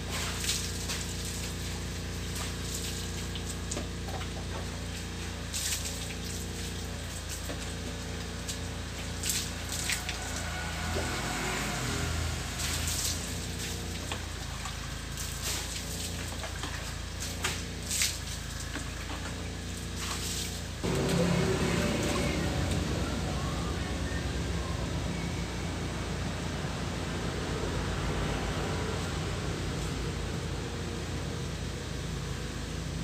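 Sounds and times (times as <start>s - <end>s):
running and dripping water: 0.0s - 24.0s
water splashing on concrete: 4.8s - 10.6s, 12.0s - 18.7s
low hum: 7.8s - 33.0s.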